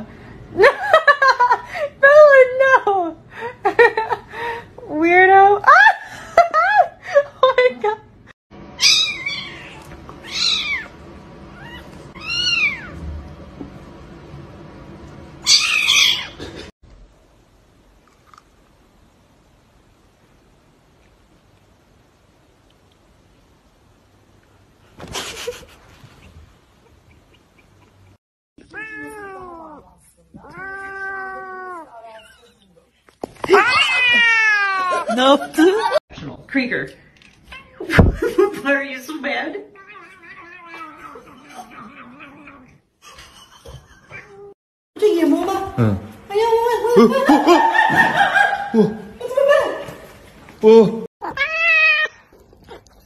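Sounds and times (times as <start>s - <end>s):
kitten meowing: 8.8s - 10.9s, 11.6s - 12.9s
cat yowling: 8.8s - 11.0s, 11.6s - 13.0s, 28.6s - 32.5s, 33.6s - 35.1s, 51.2s - 52.4s.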